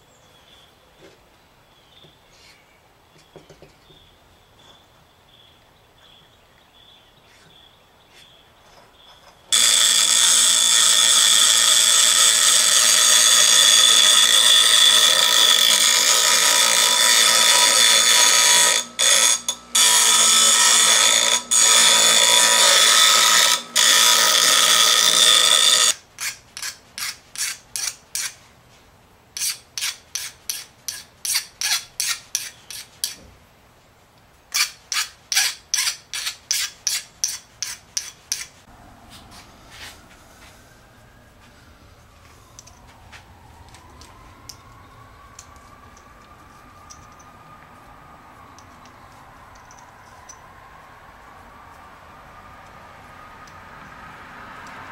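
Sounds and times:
bench grinder grinding steel: 9.5 - 28.4.

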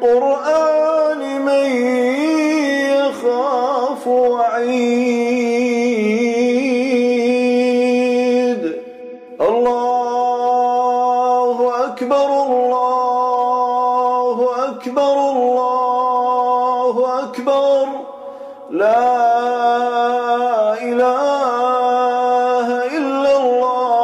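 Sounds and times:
man chanting recitation: 0.0 - 24.0.

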